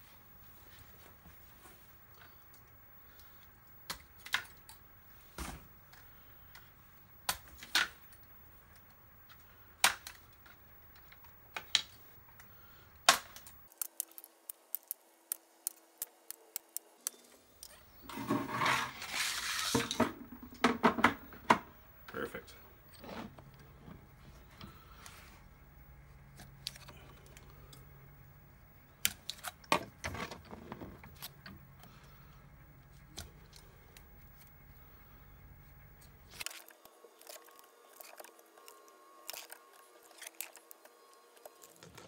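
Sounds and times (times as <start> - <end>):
plastic pieces being handled: 13.1 - 20.1.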